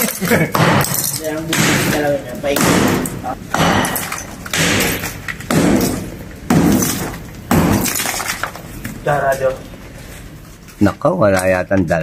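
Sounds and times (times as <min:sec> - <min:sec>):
breaking concrete rattling: 0:00.0 - 0:08.7.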